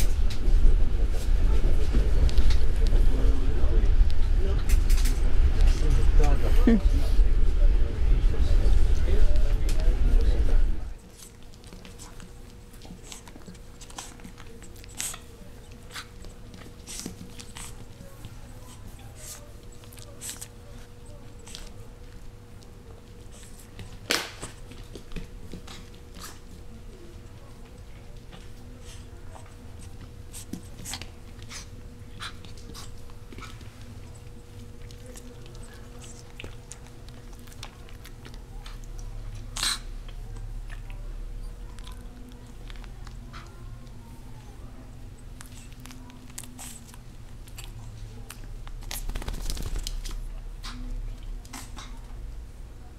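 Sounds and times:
puppy mouthing and nipping: 11.0 - 44.5, 45.2 - 52.1
puppy clicks and scuffles on tile: 45.4 - 52.1.

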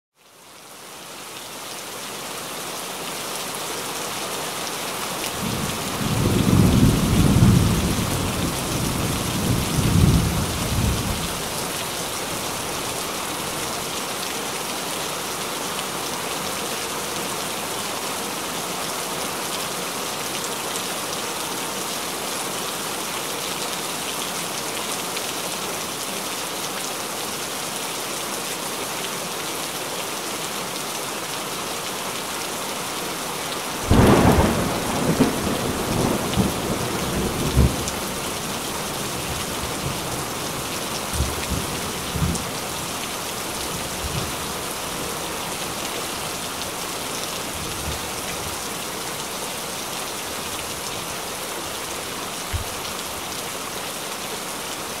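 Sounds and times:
heavy rain: 0.2 - 55.0
thunder rumbling: 33.9 - 37.9.

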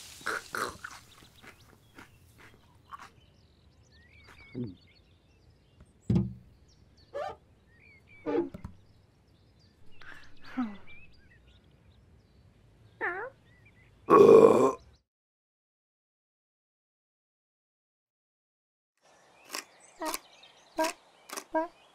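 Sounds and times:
faint bird chirps: 0.2 - 5.8
dull thump: 6.1 - 6.4.

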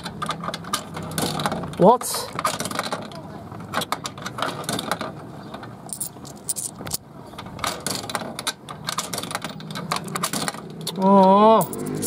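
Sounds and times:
coins clicking and rattling: 5.9 - 7.0, 11.6 - 12.0.

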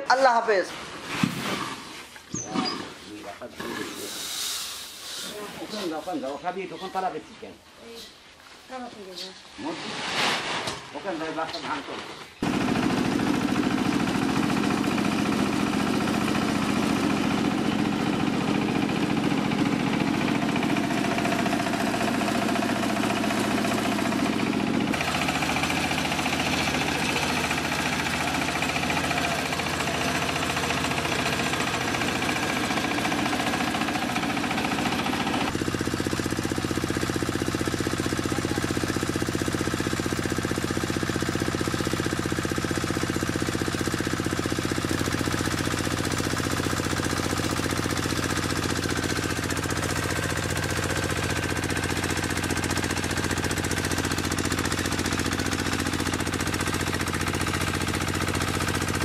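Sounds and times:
diesel engine knocking: 12.4 - 59.0.

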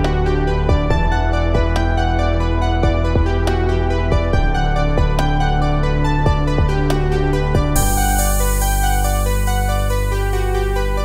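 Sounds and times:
electronic dance music: 7.8 - 10.8.

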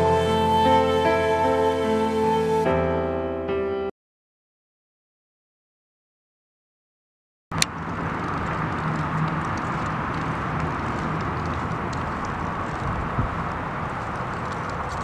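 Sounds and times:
car engine idling: 7.6 - 15.0
faint engine ticking: 7.6 - 15.0.

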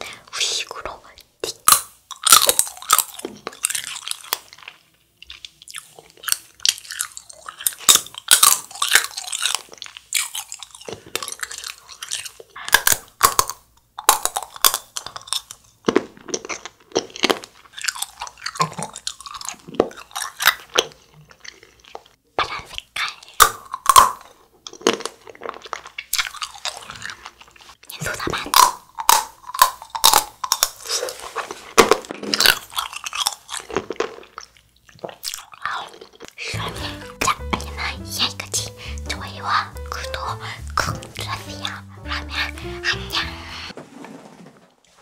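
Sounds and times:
chewing: 1.4 - 36.6.

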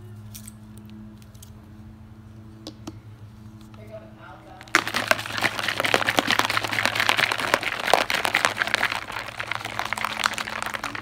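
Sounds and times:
liquid sloshing in plastic bottle: 4.7 - 11.0.

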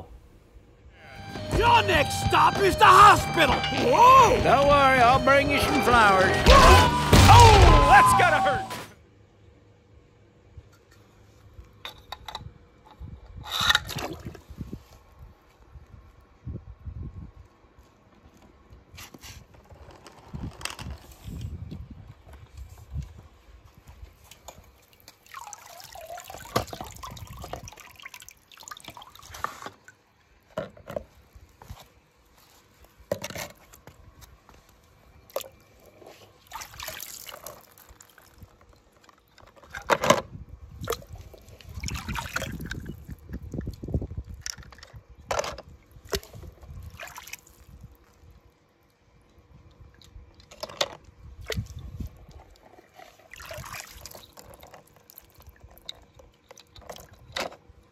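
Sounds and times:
water sloshing and pouring: 24.3 - 30.1, 35.3 - 39.9, 40.8 - 45.0, 45.9 - 48.2, 51.4 - 57.4.

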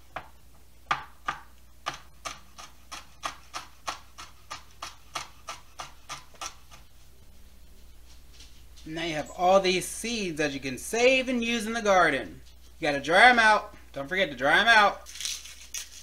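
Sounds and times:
knife chopping on plastic board: 0.9 - 6.9.

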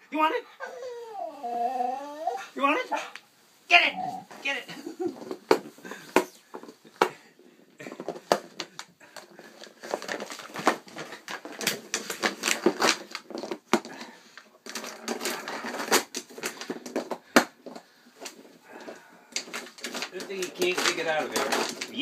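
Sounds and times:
plastic toy clattering: 7.8 - 14.0, 14.6 - 22.0.

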